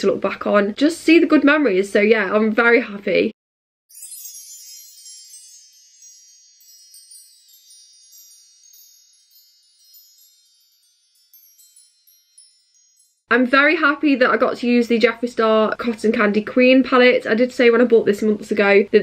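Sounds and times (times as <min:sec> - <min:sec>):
high tinkling chimes: 0:03.9 - 0:13.4.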